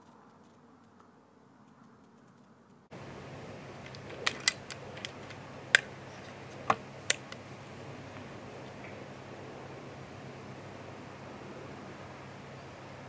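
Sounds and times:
low hum: 0:00.0 - 0:13.0
steady hiss: 0:00.0 - 0:13.0
sharp clicks and knocks: 0:03.8 - 0:07.5.

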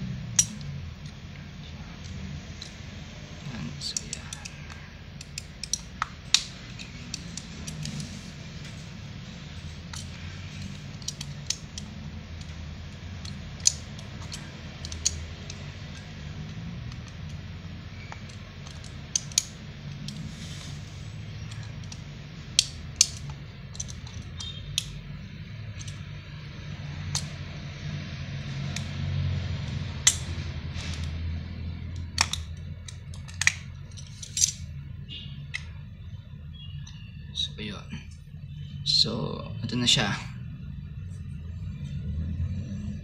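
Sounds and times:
steady low hum: 0:00.0 - 0:43.0
plastic case clicking and snapping: 0:13.2 - 0:17.4, 0:18.1 - 0:20.2, 0:31.9 - 0:34.6.

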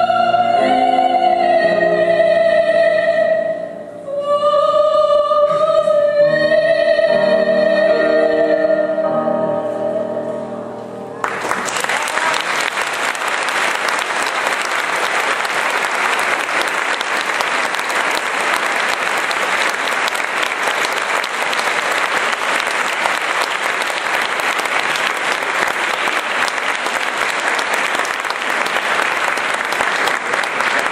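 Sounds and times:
audience applauding: 0:11.2 - 0:30.9.

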